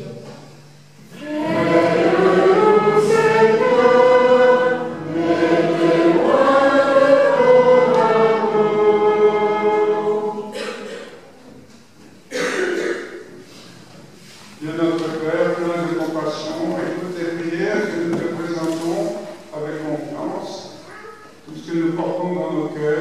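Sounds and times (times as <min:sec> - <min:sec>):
church choir singing: 0:01.0 - 0:11.0.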